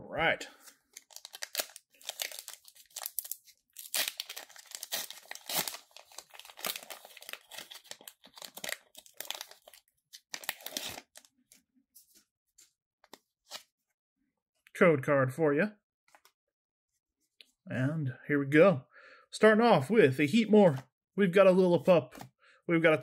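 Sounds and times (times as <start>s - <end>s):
foil wrapper tearing and crinkling: 0.9s - 11.3s.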